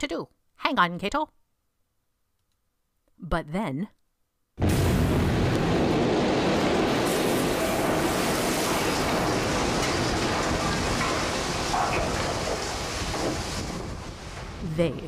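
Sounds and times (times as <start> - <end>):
explosion rumble: 4.6 - 15.0.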